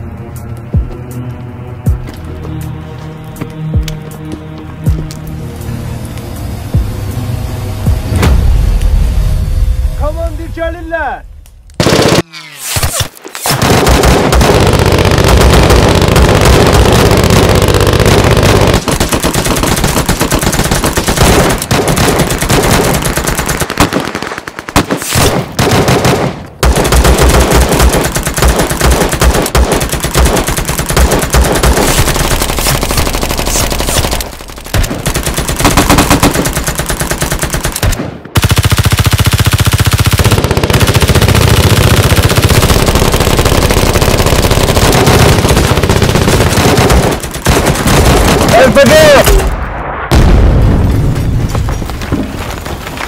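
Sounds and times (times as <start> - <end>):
automatic gunfire: 11.8 - 49.4.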